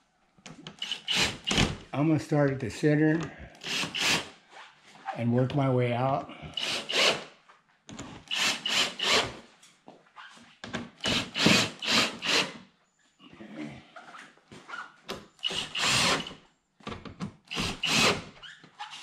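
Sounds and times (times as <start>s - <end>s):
cordless drill bursts: 0.8s - 1.7s, 3.6s - 4.3s, 6.5s - 7.3s, 8.3s - 9.4s, 11.0s - 12.6s, 15.4s - 16.4s, 17.5s - 18.3s.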